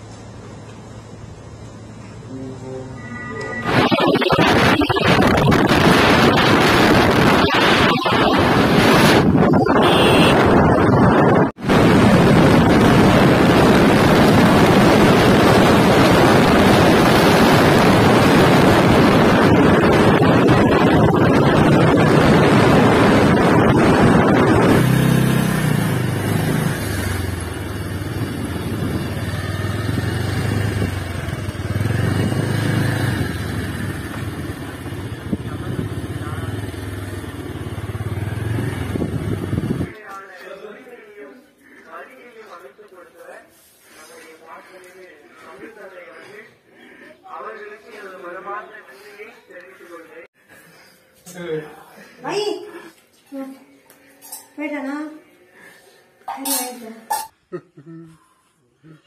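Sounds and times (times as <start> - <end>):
wind rushing over microphone: 3.7 - 33.9, 37.8 - 39.9
motorcycle engine running: 9.8 - 39.9.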